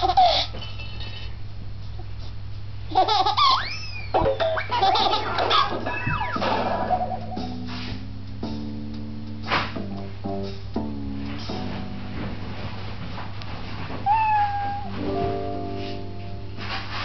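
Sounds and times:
plucked string music: 4.2s - 13.3s, 14.1s - 16.7s
cat meowing: 14.0s - 15.0s.

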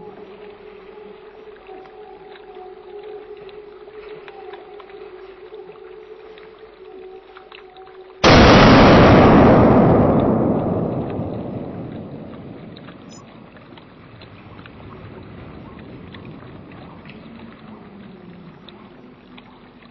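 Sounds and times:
echoing gunshot: 8.2s - 13.2s.

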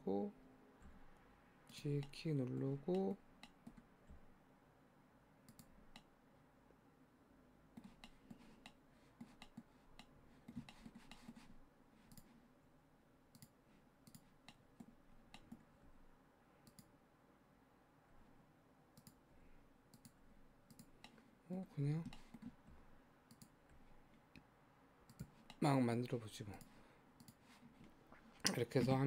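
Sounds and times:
computer mouse clicking: 2.0s - 4.3s, 5.4s - 6.1s, 7.7s - 12.4s, 13.3s - 15.7s, 16.6s - 16.9s, 19.0s - 19.2s, 19.9s - 21.2s, 21.9s - 25.6s, 26.5s - 27.5s.

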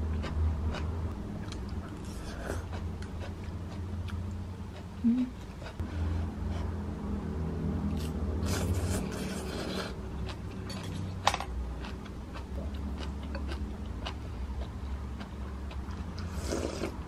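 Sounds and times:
low steady hum: 0.0s - 17.0s
chewing: 1.4s - 5.8s, 11.8s - 17.0s.

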